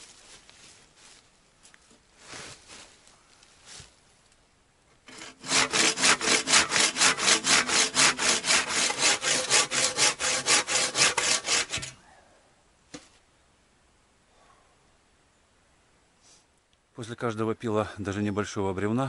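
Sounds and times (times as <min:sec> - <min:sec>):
handsaw cutting wood: 0:05.1 - 0:12.0.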